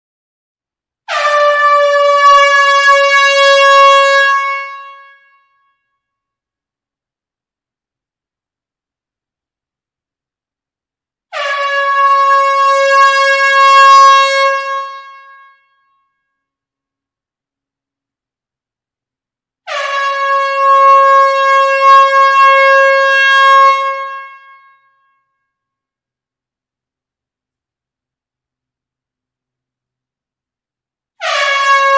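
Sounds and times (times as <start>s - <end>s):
air horn blast: 1.1s - 5.3s, 11.3s - 15.6s, 19.6s - 24.7s, 31.2s - 31.9s.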